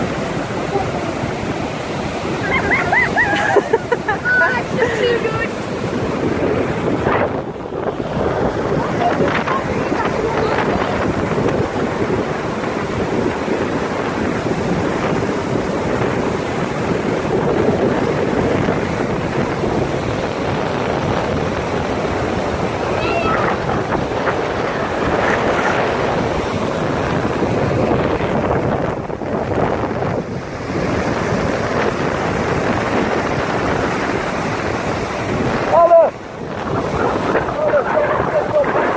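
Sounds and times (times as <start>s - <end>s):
surf breaking on stony beach: 0.0s - 38.9s
wind buffeting microphone: 0.0s - 38.9s.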